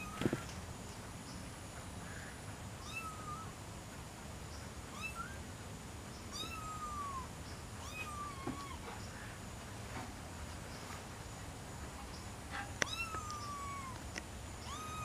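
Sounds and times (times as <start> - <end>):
kitten meowing: 2.8 - 3.5, 4.9 - 5.4, 6.3 - 8.8, 12.8 - 14.0, 14.6 - 15.0.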